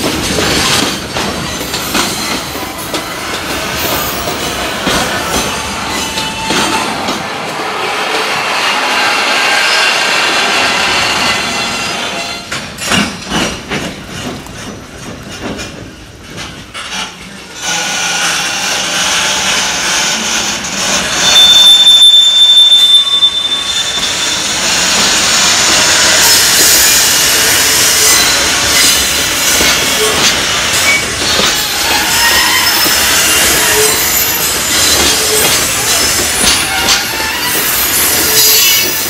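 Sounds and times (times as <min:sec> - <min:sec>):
wheels clacking over rail joints: 0:00.0 - 0:07.8, 0:12.4 - 0:19.8, 0:24.0 - 0:39.0
freight train rumbling past: 0:00.0 - 0:39.0
metallic wheel squeal: 0:21.0 - 0:25.0, 0:26.3 - 0:39.0.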